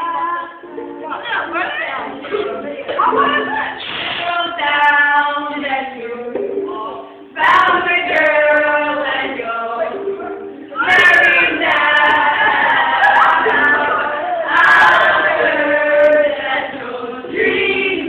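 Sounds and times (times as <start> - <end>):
group singing: 0.0 - 18.0.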